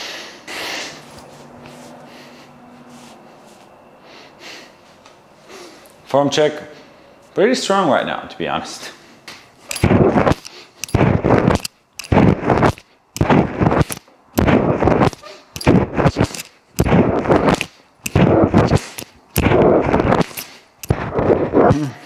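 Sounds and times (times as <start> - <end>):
man breathing hard: 0.0 - 1.2, 1.9 - 6.0.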